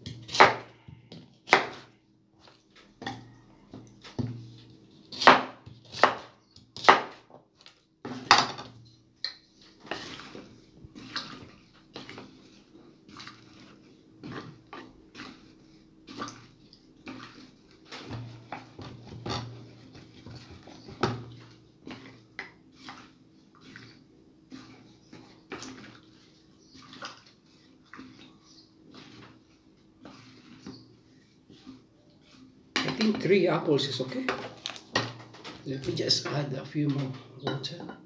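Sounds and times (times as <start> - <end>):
wooden spatula stirring: 0.0 - 38.0
water sloshing: 9.6 - 33.2.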